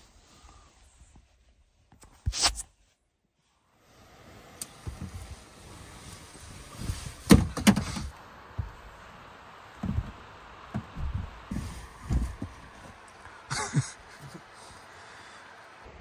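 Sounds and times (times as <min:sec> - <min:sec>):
rustling of bedding and clothing: 0:02.8 - 0:14.9
heavy thumps against truck bed: 0:07.2 - 0:08.8, 0:09.8 - 0:12.6.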